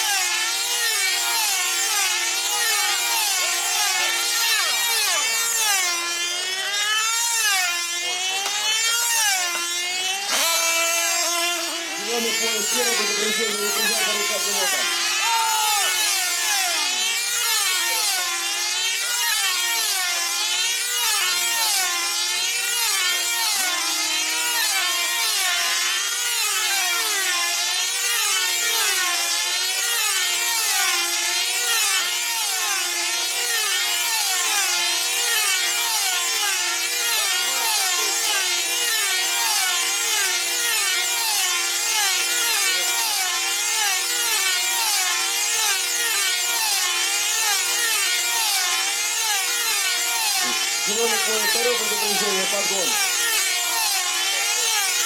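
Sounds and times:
model aircraft engines whining: 1.8s - 18.0s, 47.3s - 55.0s.

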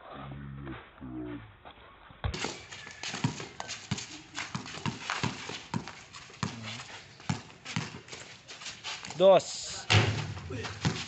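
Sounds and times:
basketball bouncing on concrete: 2.3s - 6.6s, 7.3s - 8.2s, 9.9s - 11.0s.

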